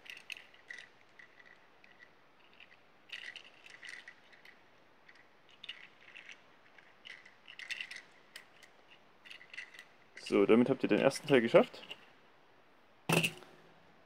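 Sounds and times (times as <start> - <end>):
plastic toy parts clicking: 0.0 - 9.9.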